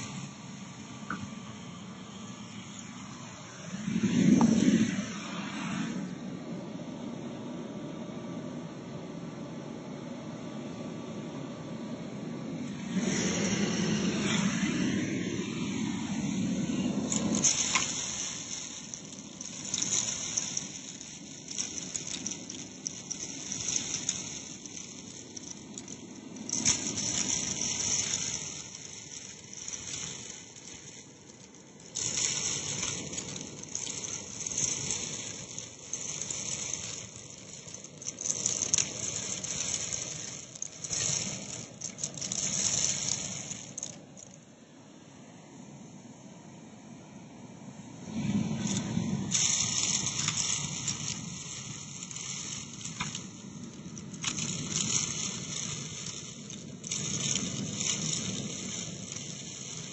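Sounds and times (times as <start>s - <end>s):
grains rattling up hose: 0.0s - 6.2s, 12.5s - 44.8s, 48.2s - 59.9s
vacuum cleaner suction hiss: 12.6s - 25.6s.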